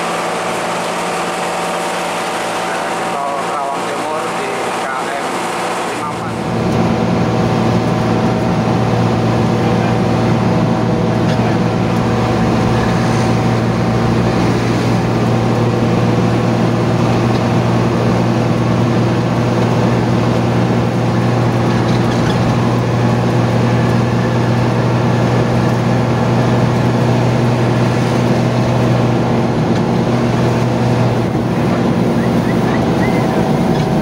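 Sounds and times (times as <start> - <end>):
bus diesel engine droning: 0.0 - 34.0
road noise: 0.0 - 34.0.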